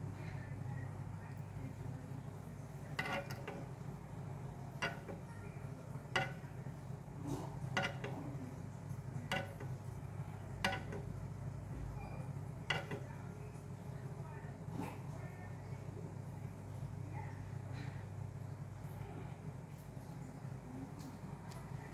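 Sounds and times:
steady low hum: 0.0s - 21.9s.

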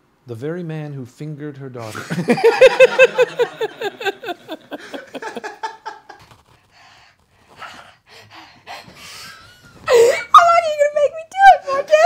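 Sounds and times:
men laughing: 1.9s - 6.2s.

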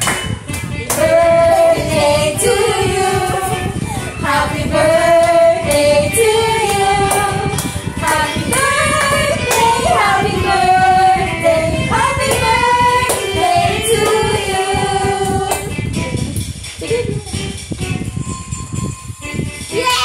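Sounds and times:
song with female vocal: 0.9s - 15.7s.

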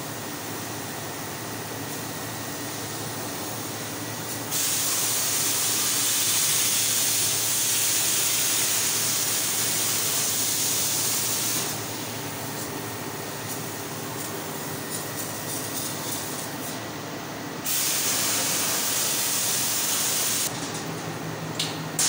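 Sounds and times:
laser cutter gas hissing: 4.3s - 12.3s, 17.6s - 20.5s.

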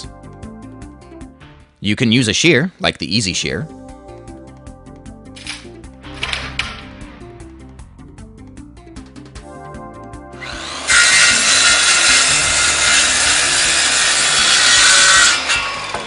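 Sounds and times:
background music: 0.0s - 16.0s
power saw cutting floorboard: 10.3s - 16.0s.

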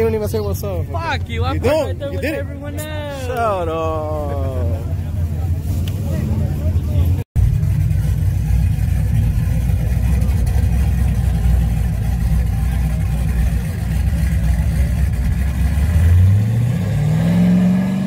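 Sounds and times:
truck engine rumbling and revving: 0.0s - 18.0s.

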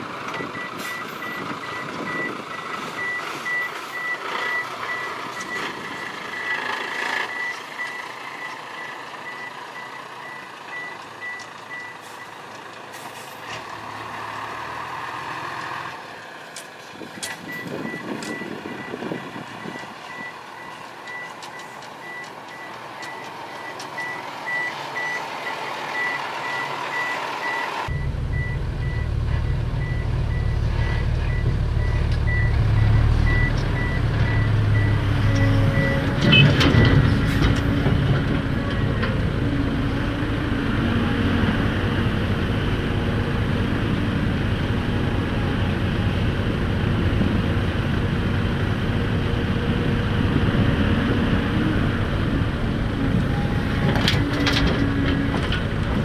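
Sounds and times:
diesel engine running: 0.0s - 56.0s
truck reversing alarm beeping: 0.3s - 12.4s, 17.4s - 37.8s, 38.4s - 39.6s.

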